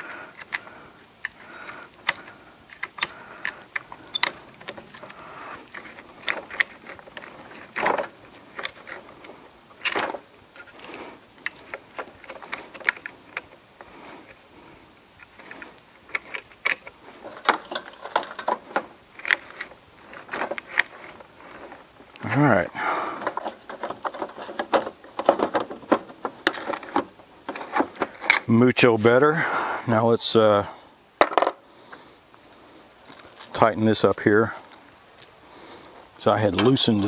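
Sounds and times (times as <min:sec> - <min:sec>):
steel pick clicking and scraping: 0:00.0 - 0:14.5, 0:15.2 - 0:22.2.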